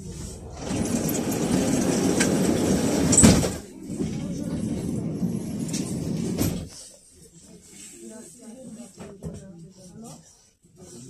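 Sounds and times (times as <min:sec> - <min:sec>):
tram interior noise: 0:00.0 - 0:06.7.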